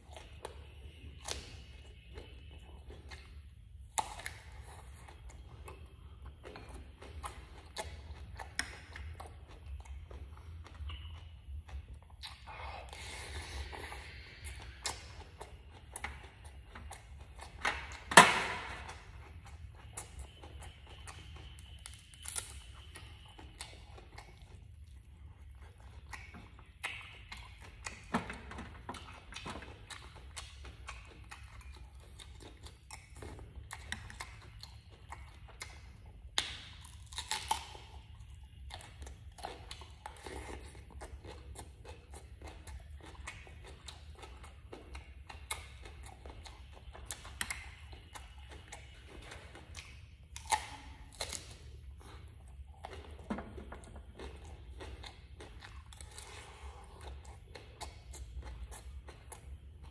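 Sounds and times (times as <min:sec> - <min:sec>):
person chewing and crunching food: 0:00.0 - 0:59.9.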